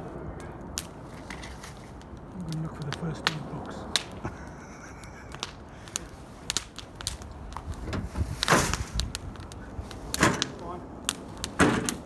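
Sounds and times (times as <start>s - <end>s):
rustling scrape: 1.1s - 2.0s.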